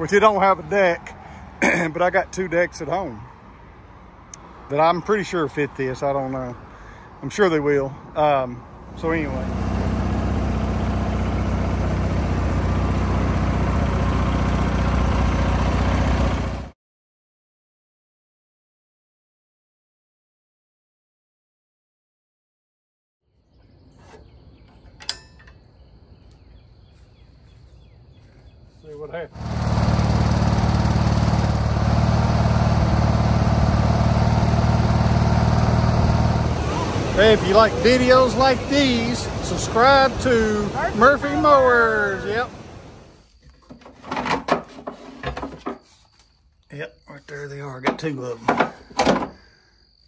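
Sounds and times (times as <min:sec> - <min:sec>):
small tractor engine running: 0:08.9 - 0:16.7, 0:29.3 - 0:37.7.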